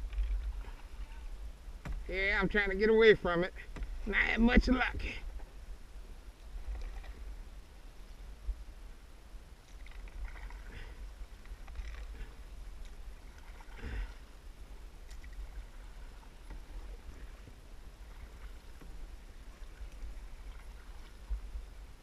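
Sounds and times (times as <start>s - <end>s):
low rumble: 0.0s - 22.0s
paddle dipping through water: 0.0s - 22.0s
water splashes: 6.4s - 7.4s, 9.6s - 22.0s.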